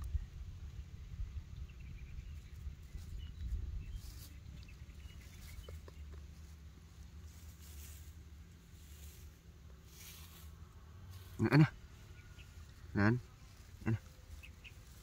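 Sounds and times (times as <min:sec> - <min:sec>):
wind rumble on microphone: 0:00.0 - 0:06.2.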